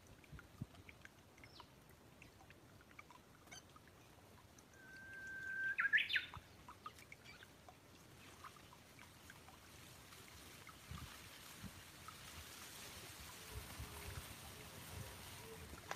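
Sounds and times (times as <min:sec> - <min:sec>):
faint bird chirps: 0:04.7 - 0:07.5
bird whistling call: 0:04.8 - 0:06.3.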